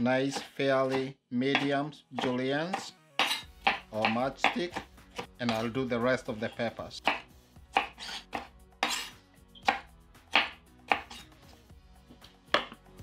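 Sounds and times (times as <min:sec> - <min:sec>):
knife slicing on wooden board: 0:00.3 - 0:01.0, 0:01.6 - 0:05.7, 0:07.0 - 0:11.4.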